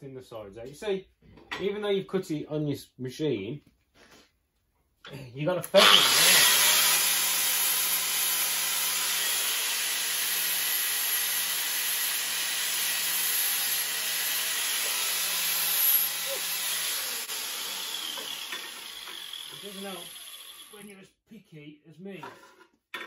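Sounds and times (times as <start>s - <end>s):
hand grinder grinding metal: 5.8s - 20.8s.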